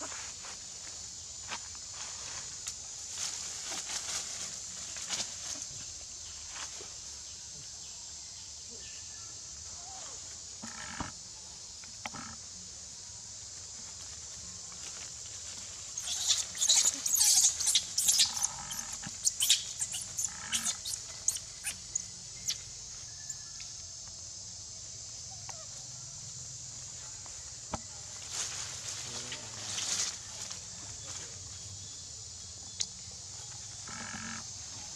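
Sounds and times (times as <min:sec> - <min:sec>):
rustling leaves and branches: 0:00.0 - 0:07.5, 0:13.3 - 0:23.1, 0:26.6 - 0:33.8
insects droning: 0:00.0 - 0:34.9.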